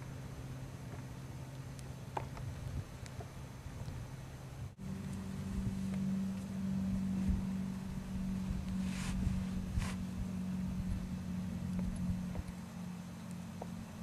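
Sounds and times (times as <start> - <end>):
low hum: 0.0 - 14.0
low rumbling: 0.0 - 14.0
hissy scrapes: 8.7 - 10.2.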